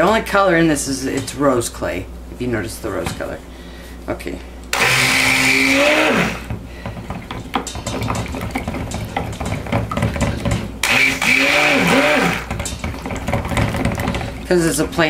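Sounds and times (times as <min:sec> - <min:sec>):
stick blender motor whine: 0:04.7 - 0:06.5, 0:10.8 - 0:12.5.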